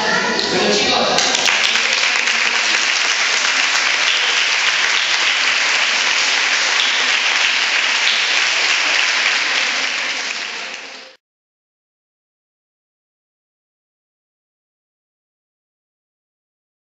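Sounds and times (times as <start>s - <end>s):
audience applauding: 0.4s - 11.2s.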